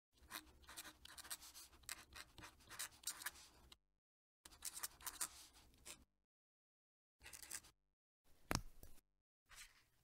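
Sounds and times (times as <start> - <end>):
pen nib scratching paper: 0.2 - 3.6, 4.5 - 6.0.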